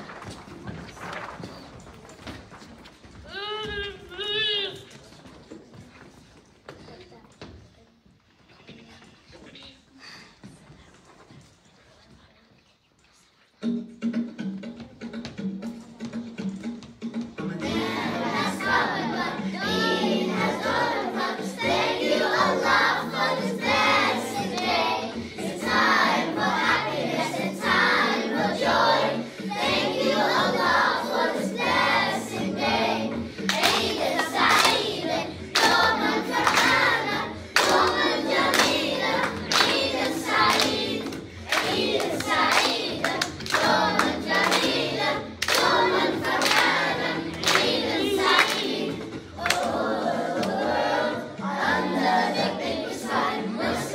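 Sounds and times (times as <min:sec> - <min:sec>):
backing music: 0:13.6 - 0:53.9
children singing: 0:17.5 - 0:53.9
hand-clapping in time: 0:33.5 - 0:49.8.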